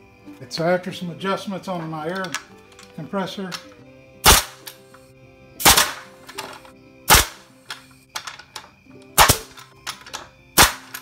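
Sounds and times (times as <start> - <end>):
pneumatic nailer firing: 4.2 - 4.7, 5.6 - 6.5, 7.1 - 8.3, 9.2 - 11.0.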